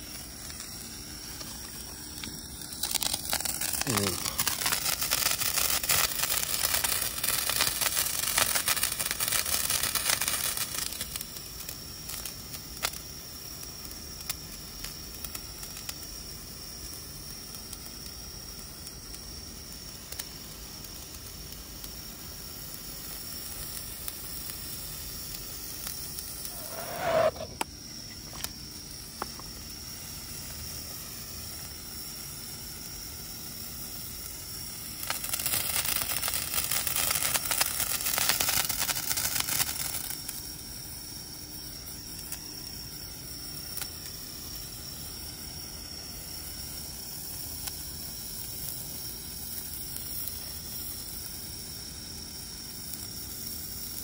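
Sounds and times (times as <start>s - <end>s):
small crackles: 0.0s - 16.3s, 16.9s - 54.0s
firework sparks hissing: 0.0s - 54.0s
short rising squeak: 26.5s - 27.6s.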